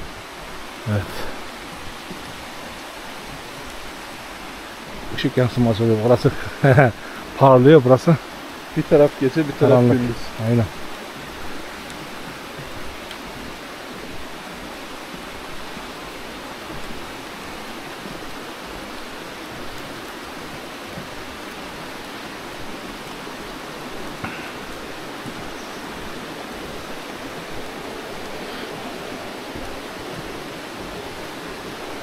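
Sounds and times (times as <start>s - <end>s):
stream rushing over stones: 0.0s - 32.0s
faint ticks: 11.2s - 13.6s.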